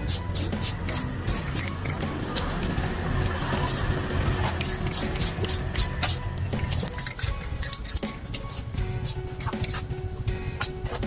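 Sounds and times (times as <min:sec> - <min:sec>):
aerosol spray can hiss: 0:00.0 - 0:01.4, 0:04.6 - 0:06.2
background music: 0:00.0 - 0:11.0.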